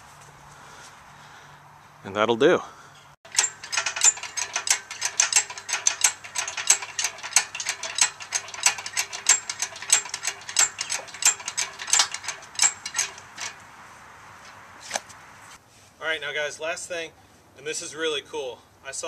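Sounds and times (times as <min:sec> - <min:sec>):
engine hoist ratchet clicking: 0:03.3 - 0:13.6.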